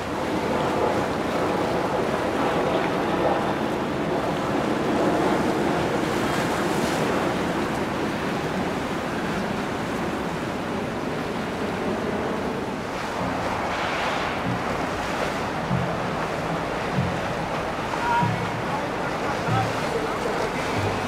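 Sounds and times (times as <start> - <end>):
water rushing: 0.0 - 21.0
wind rushing: 12.2 - 21.0.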